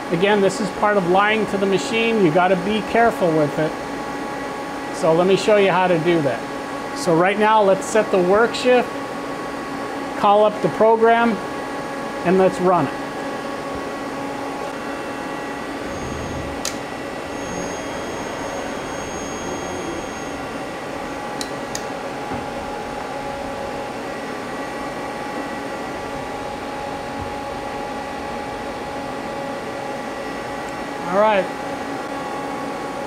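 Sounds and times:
lathe machine hum: 12.9s - 33.0s.

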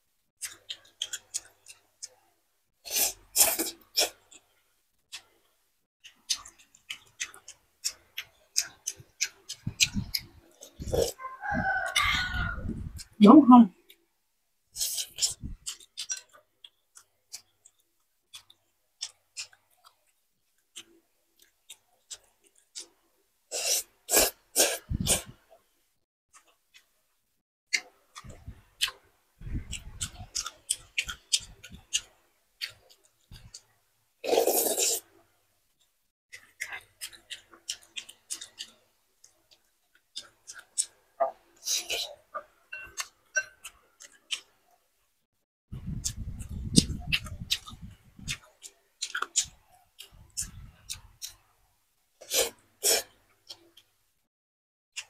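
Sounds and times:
chewing with lip smacks: 0.4s - 2.2s, 6.0s - 11.2s, 14.8s - 23.0s, 27.7s - 33.7s, 36.3s - 44.6s, 45.8s - 51.5s
sipping broth: 34.2s - 35.0s
slurping broth from spoon: 34.2s - 35.1s, 52.2s - 53.2s.

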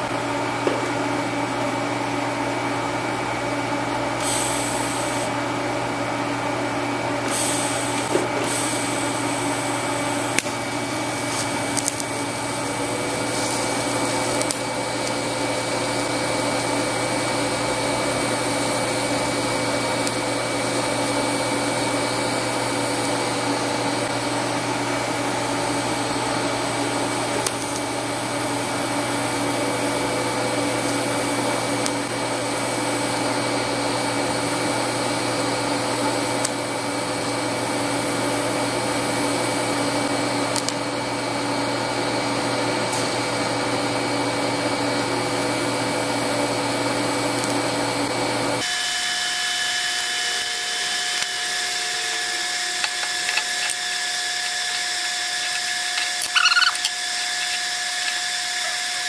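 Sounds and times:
welder humming and hissing: 0.0s - 44.0s, 44.6s - 59.0s.

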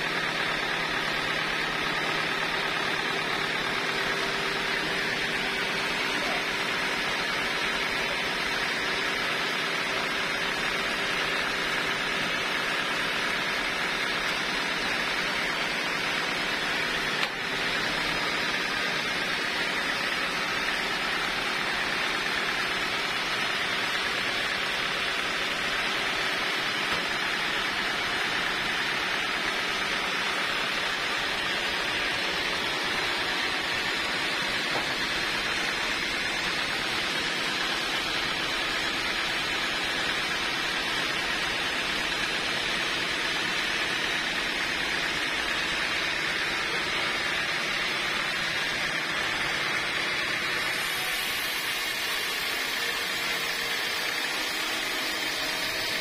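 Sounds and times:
band saw whirring: 0.0s - 56.0s.

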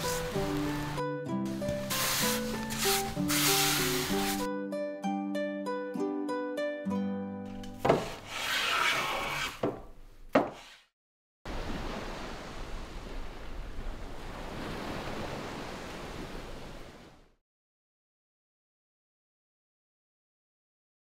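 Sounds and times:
waves breaking on beach: 0.0s - 1.0s, 11.5s - 17.3s
wooden board being planed: 7.8s - 9.8s.

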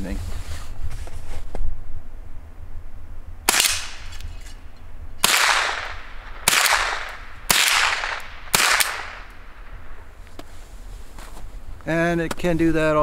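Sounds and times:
rifle shots with echo: 3.5s - 4.2s, 5.2s - 10.0s.

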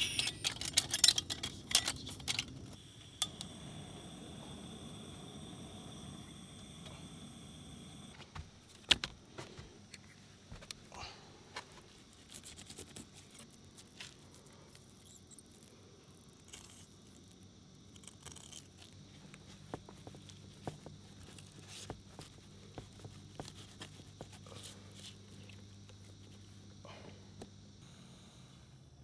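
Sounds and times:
low hum: 0.0s - 8.2s.

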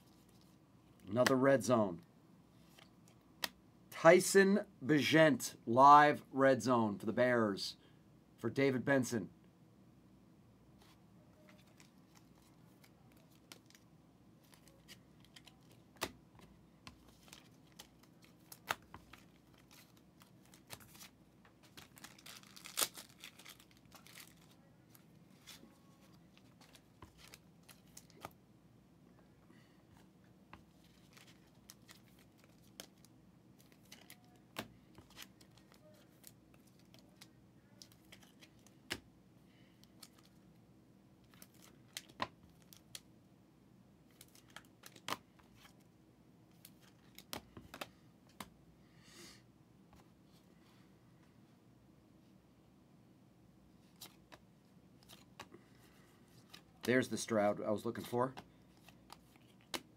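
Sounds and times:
cards clicking and tapping: 14.5s - 24.5s, 46.6s - 48.5s, 58.0s - 59.9s
wrapper crinkling and tearing: 17.2s - 24.6s.

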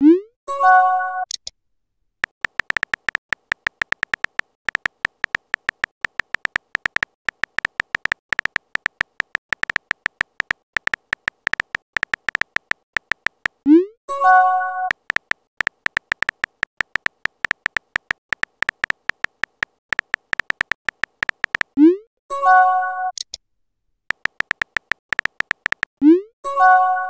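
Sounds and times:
phone keyboard typing clicks: 2.2s - 13.6s, 14.9s - 21.8s, 24.1s - 26.0s.

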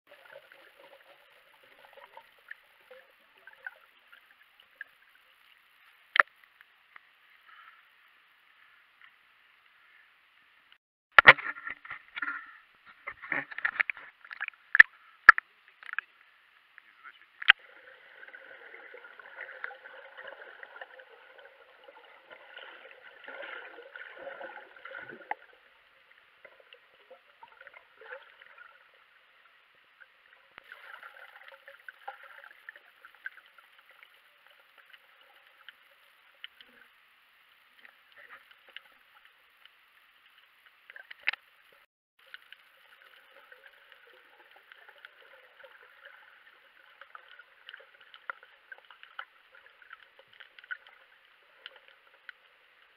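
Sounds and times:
small clicks and crackles: 1.7s - 17.6s, 30.0s - 52.9s.

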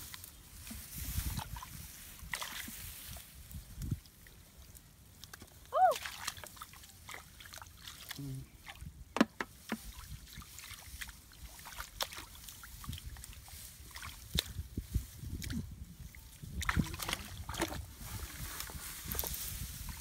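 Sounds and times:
hands sloshing in muddy water: 0.0s - 3.3s, 5.1s - 8.9s, 9.8s - 20.0s
small splashes: 1.2s - 3.2s, 5.1s - 8.9s, 9.7s - 14.6s, 16.5s - 17.9s.

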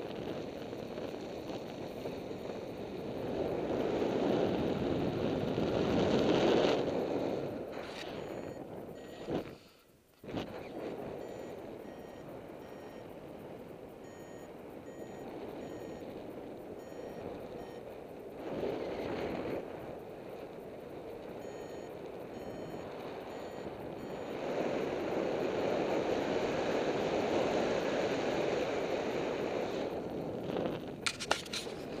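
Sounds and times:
variometer high beeps: 7.9s - 9.4s, 10.6s - 17.9s, 21.3s - 25.1s.

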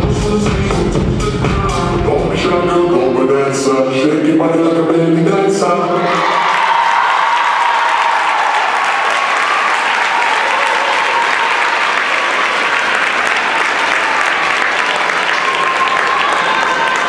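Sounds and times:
audience applauding: 6.3s - 17.0s.

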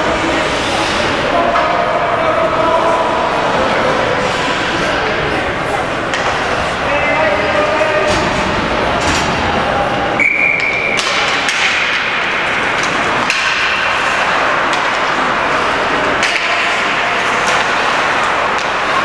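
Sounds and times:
arena noise: 0.0s - 19.0s
hockey sticks and puck clacking: 6.0s - 7.0s, 10.3s - 19.0s.

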